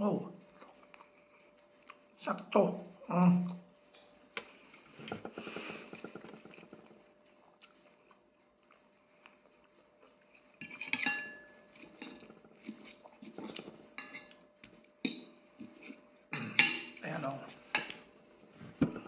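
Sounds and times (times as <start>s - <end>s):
close-up chewing: 0.4s - 2.3s, 4.4s - 10.6s
fork scraping and clinking on plate: 10.6s - 14.4s.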